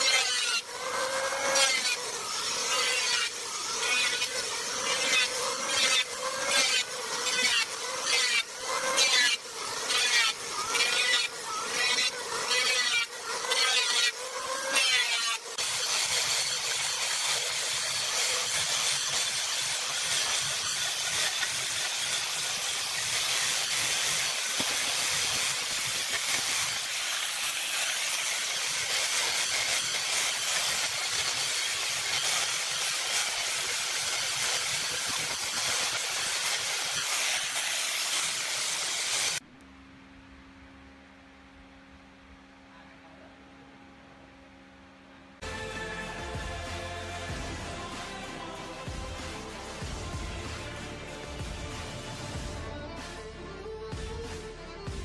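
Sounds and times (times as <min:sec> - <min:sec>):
angle grinder sanding wood: 0:00.0 - 0:39.4.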